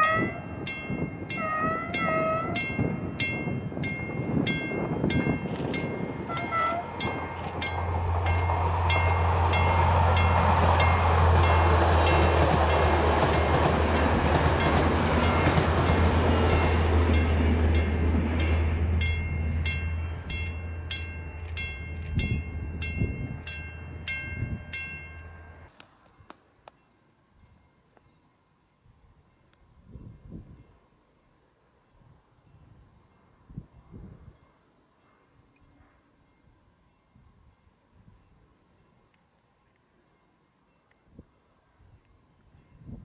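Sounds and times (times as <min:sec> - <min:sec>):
locomotive engine hum: 0:00.0 - 0:26.2
train wheels rumbling on rail: 0:00.1 - 0:25.7.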